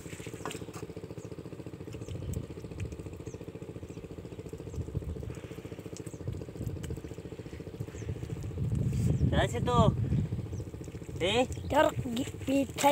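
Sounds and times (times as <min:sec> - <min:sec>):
diesel pump engine chugging: 0:00.0 - 0:12.9.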